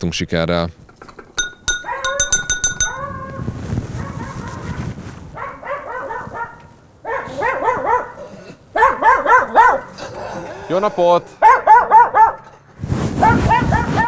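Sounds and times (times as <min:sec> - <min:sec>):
dog barking: 0:01.7 - 0:10.0, 0:11.4 - 0:12.5, 0:13.2 - 0:14.0.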